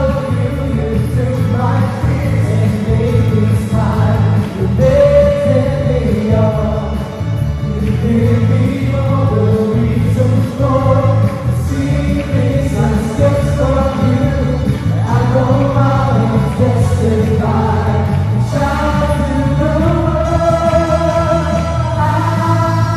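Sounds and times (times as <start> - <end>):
electric bass guitar: 0.0 - 22.9
keyboard: 0.0 - 22.9
group of singers singing: 15.0 - 22.9.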